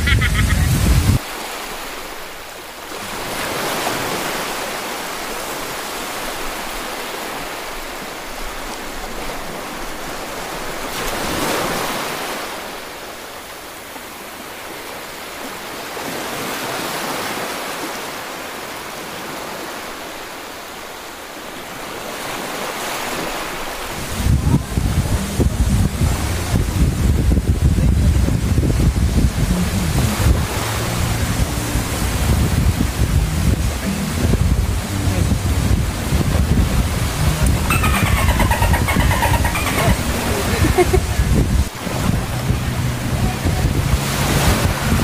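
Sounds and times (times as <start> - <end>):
sea waves washing onto beach: 0.0 - 45.0
low rumble on microphone: 24.0 - 45.0.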